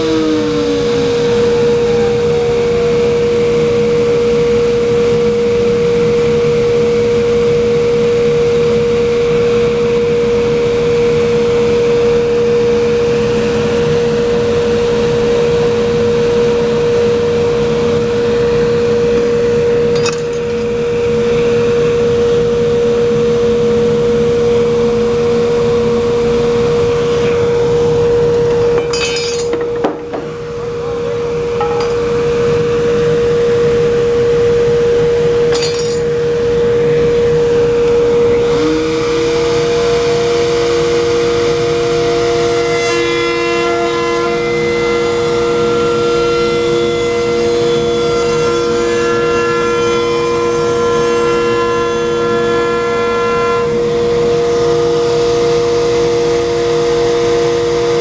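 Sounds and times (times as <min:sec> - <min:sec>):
second motor spinning up: 0:00.0 - 0:03.2
machine motor running with whine: 0:00.0 - 0:58.0.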